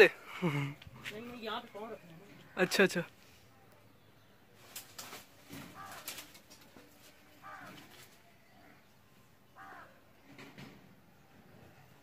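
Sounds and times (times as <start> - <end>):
crow cawing: 5.5 - 6.4, 7.4 - 8.8, 9.6 - 10.0.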